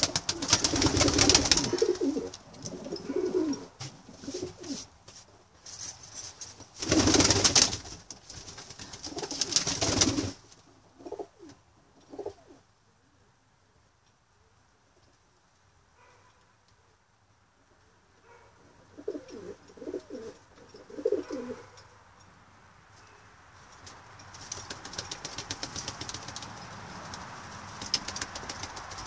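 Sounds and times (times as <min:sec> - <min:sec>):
pigeons cooing: 0:00.0 - 0:04.8, 0:11.0 - 0:12.6, 0:18.8 - 0:21.8
pigeons rustling: 0:00.0 - 0:12.6, 0:18.2 - 0:21.9, 0:22.9 - 0:29.0.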